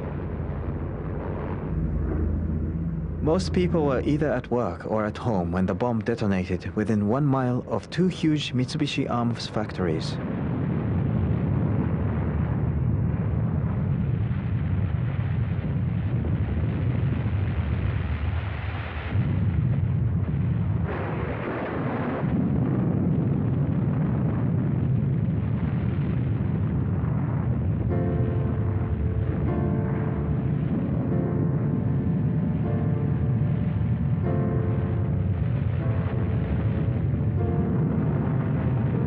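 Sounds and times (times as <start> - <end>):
music: 0.0 - 10.3, 27.7 - 39.0
deep explosion rumble: 0.0 - 39.0.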